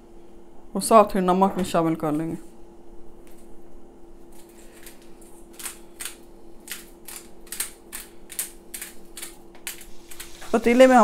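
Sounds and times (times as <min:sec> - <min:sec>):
salt grinder crunching: 0:04.4 - 0:10.4.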